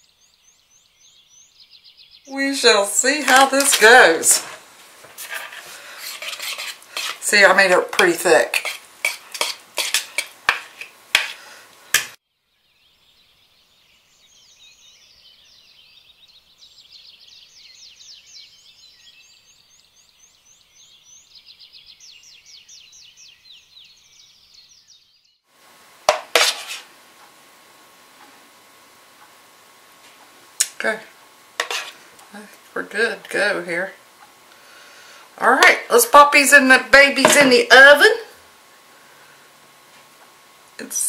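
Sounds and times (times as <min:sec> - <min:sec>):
metal spoon scraping ceramic bowl: 0:05.2 - 0:11.4, 0:26.1 - 0:26.8, 0:31.6 - 0:32.0, 0:37.2 - 0:37.6.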